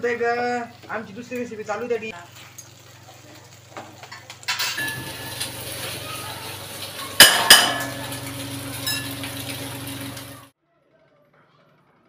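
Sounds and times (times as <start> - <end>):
spatula clinking against frying pan: 7.2 - 8.1.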